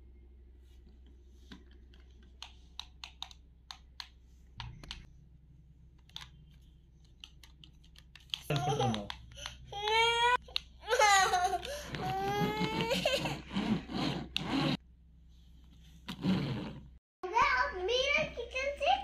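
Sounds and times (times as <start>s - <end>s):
plastic toy clicks and taps: 7.2s - 10.7s.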